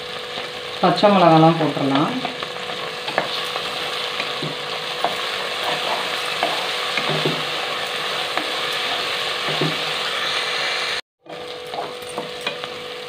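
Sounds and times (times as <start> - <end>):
onions sizzling in hot oil: 0.0 - 13.0
spatula scraping and knocking pot: 2.2 - 3.6, 4.2 - 7.6, 11.3 - 12.7.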